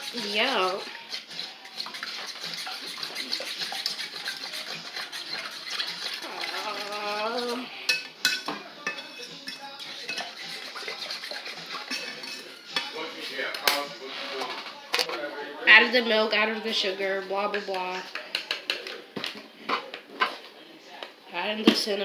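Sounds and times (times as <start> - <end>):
utensil stirring in metal saucepan: 0.0 - 14.8, 16.7 - 20.5.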